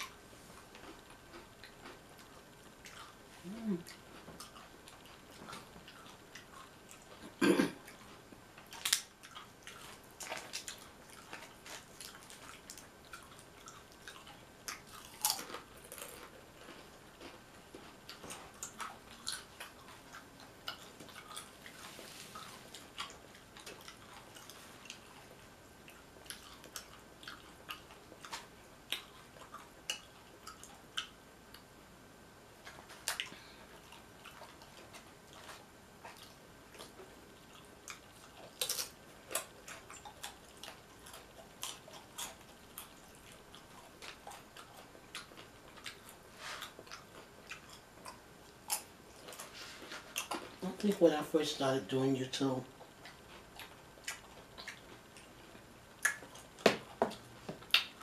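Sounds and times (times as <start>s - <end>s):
chips crunched and chewed: 8.0s - 21.8s, 37.6s - 51.0s.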